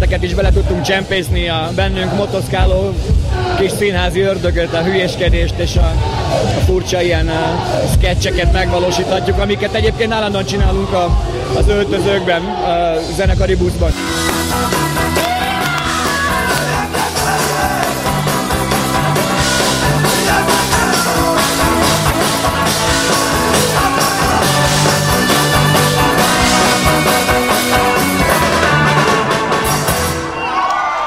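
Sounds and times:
keyboards: 0.0 - 31.0
live rock band playing: 13.9 - 30.5
electric guitar: 14.0 - 30.4.

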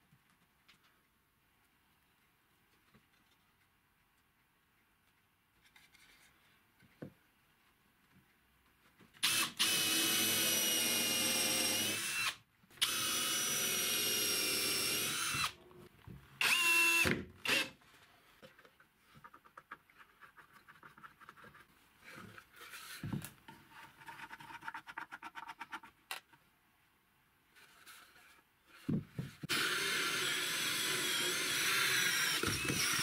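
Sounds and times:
cordless drill driving screws: 9.2 - 15.6, 16.4 - 17.8, 29.5 - 33.0.

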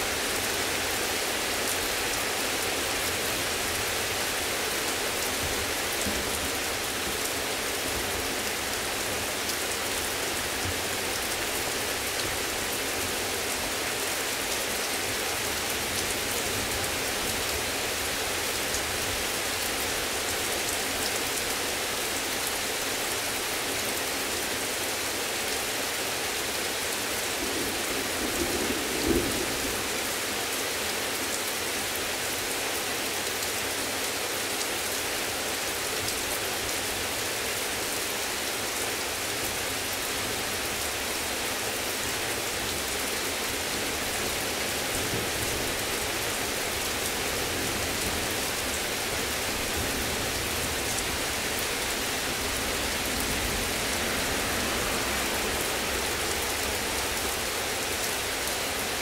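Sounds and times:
heavy rain falling: 0.0 - 59.0.

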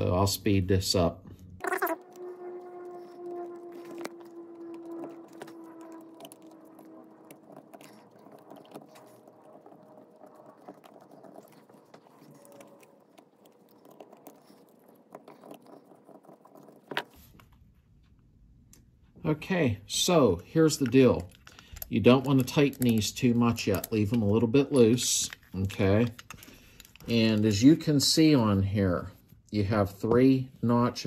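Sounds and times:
small metal parts clicking: 20.8 - 24.2.

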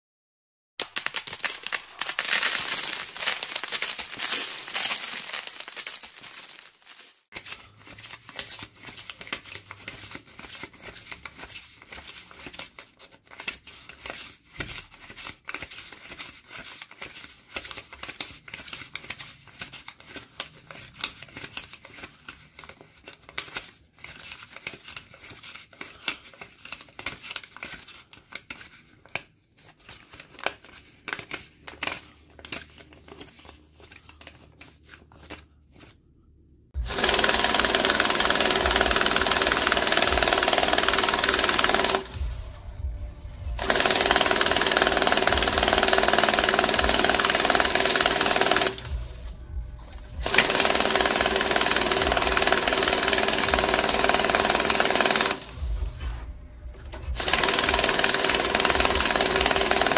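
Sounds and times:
banknotes rustling and crinkling: 0.9 - 36.0.

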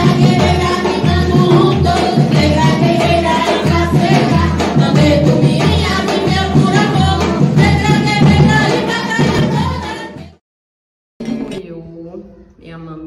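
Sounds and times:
drums beating steadily: 0.0 - 10.4
group singing: 0.0 - 10.4.

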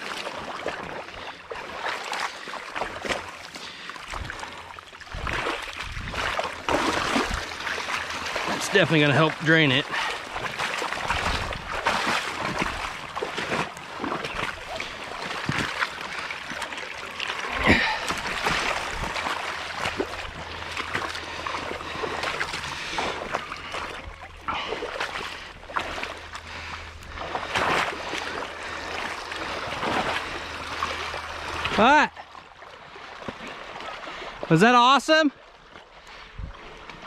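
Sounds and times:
knocks and splashes: 0.0 - 34.5
water splashing and running: 0.0 - 37.0.

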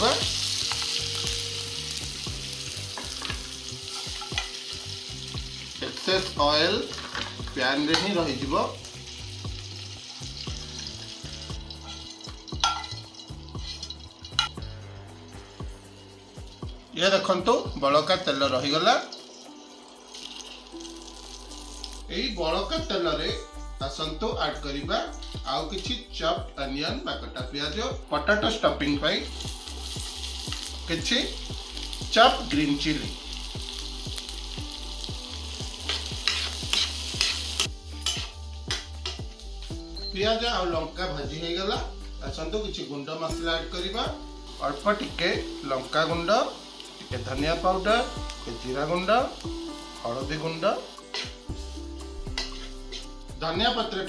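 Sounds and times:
vegetables sizzling in oil: 0.0 - 23.4, 28.5 - 54.0
metal spatula scraping pan: 13.6 - 14.6, 35.9 - 38.4, 52.3 - 53.1
spatula scraping pan: 52.3 - 53.1.

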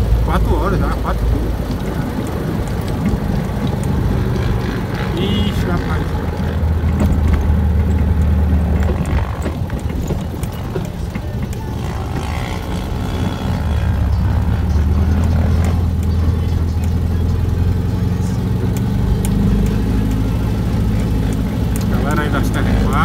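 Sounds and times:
dune buggy engine running: 0.0 - 23.0
clicks and knocks: 6.0 - 17.3.

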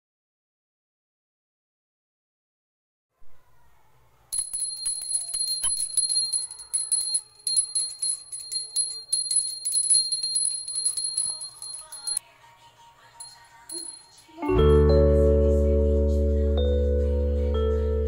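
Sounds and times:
faint music: 3.2 - 18.0
hand bell rung rapidly: 4.3 - 12.2, 13.2 - 14.2.

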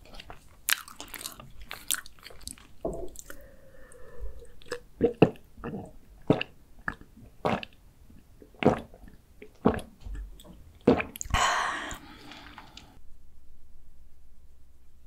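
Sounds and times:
faint steady hum: 0.0 - 15.0
person gulping a drink: 0.2 - 13.0
long breath out: 3.2 - 4.6, 11.3 - 13.0.

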